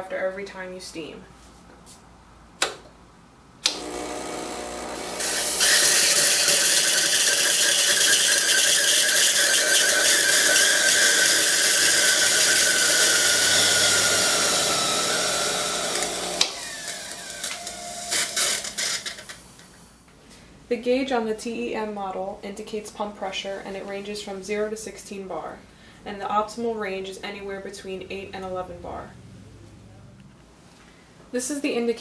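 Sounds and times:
pump buzzing: 3.6s - 19.3s.

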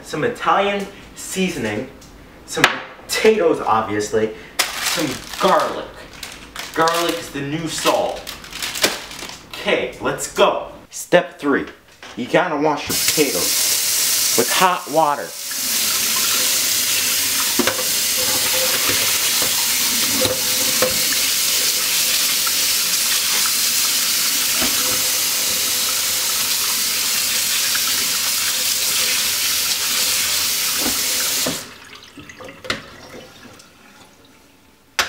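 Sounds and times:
tap running into metal sink: 17.4s - 21.2s.

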